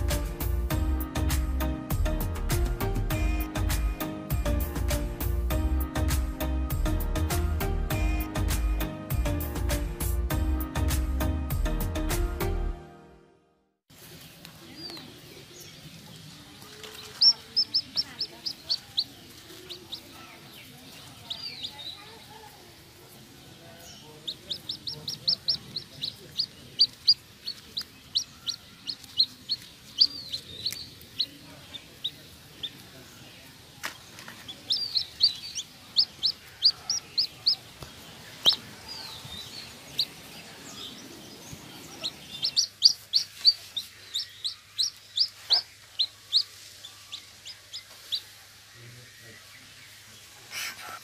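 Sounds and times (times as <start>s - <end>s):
chick peeping: 14.8s - 51.0s.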